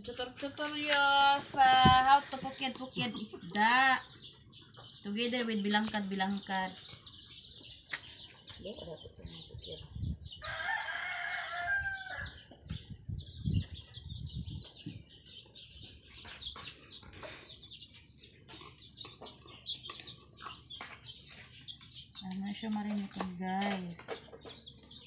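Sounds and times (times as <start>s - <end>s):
rooster crowing: 10.4s - 12.4s.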